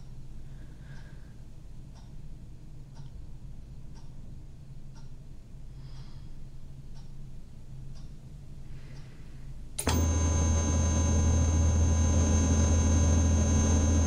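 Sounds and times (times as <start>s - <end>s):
television electronic drone: 9.8s - 14.0s
thin high whine: 9.8s - 14.0s.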